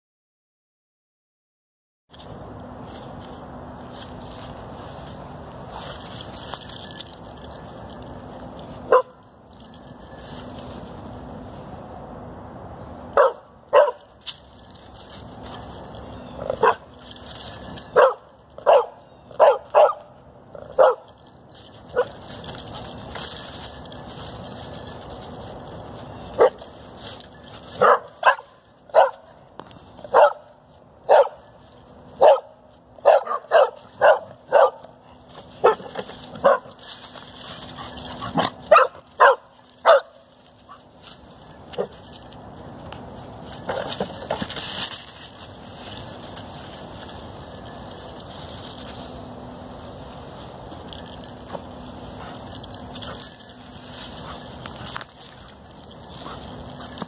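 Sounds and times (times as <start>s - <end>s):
dogs barking: 8.9s - 9.2s, 13.1s - 14.1s, 16.4s - 16.9s, 17.8s - 21.2s, 21.9s - 23.0s, 26.3s - 26.8s, 27.7s - 29.3s, 30.0s - 31.5s, 32.1s - 36.9s, 37.7s - 40.9s.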